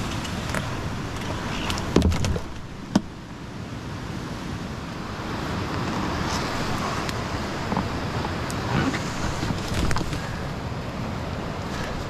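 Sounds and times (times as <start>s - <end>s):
kayak hull scraping over leaves: 0.0s - 2.5s, 5.8s - 10.5s
river rapids rushing: 0.0s - 12.0s.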